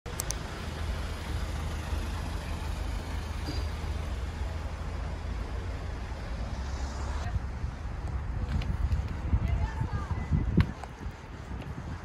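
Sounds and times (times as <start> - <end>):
low rumble of traffic: 0.1 - 12.0
wind on microphone: 6.3 - 12.0.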